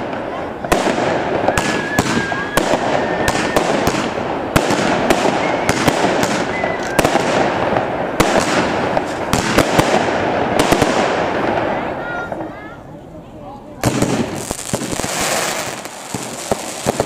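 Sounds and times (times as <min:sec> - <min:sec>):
firework shells bursting: 0:13.8 - 0:17.0.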